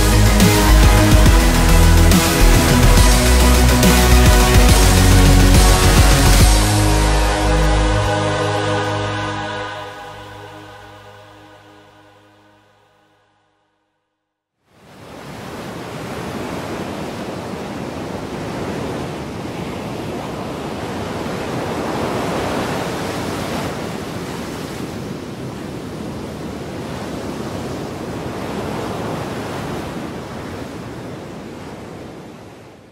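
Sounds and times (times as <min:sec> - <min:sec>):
seawater rushing over hull: 0:14.8 - 0:32.8.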